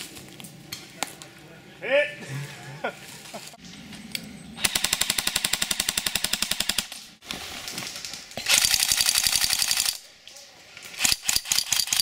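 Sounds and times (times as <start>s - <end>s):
airsoft rifle firing bursts: 4.6s - 6.9s, 8.5s - 10.0s.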